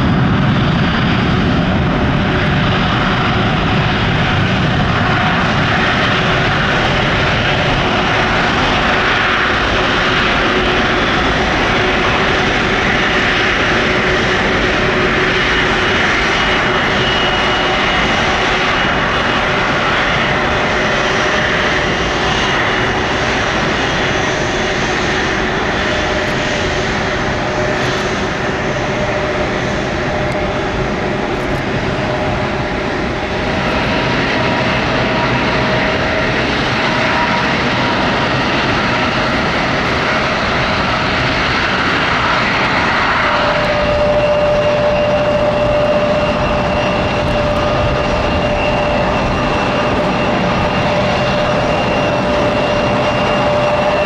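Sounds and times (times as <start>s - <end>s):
jet engine rumble: 0.0s - 54.0s
whining fan tones: 25.2s - 54.0s.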